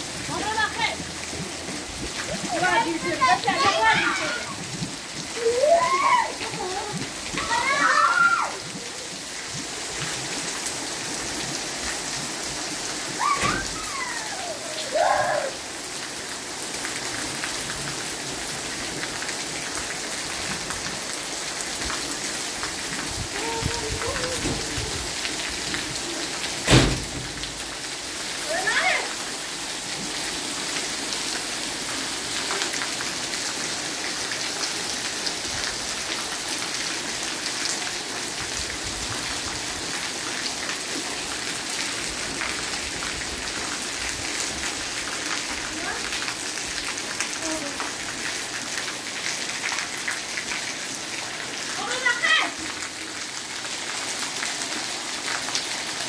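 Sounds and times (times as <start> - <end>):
heavy rain on concrete: 0.0 - 56.0.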